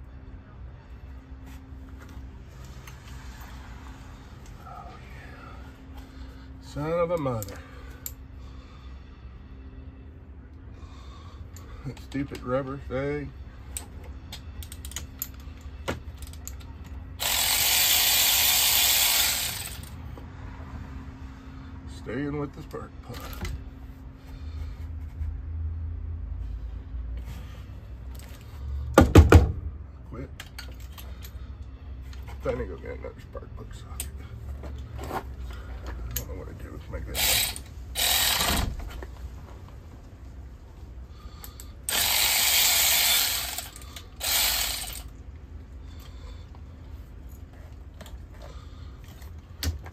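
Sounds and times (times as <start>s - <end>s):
ratchet wrench clicking: 13.8s - 16.6s, 17.2s - 20.0s, 37.1s - 38.6s, 41.4s - 45.1s
socket ratchet clicking: 41.9s - 45.1s.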